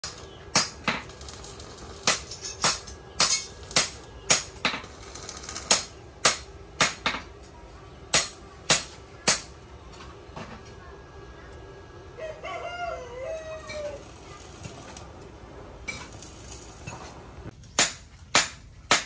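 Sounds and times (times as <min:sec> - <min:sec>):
hammer striking metal: 0:00.0 - 0:07.3, 0:08.1 - 0:09.5, 0:17.7 - 0:19.0.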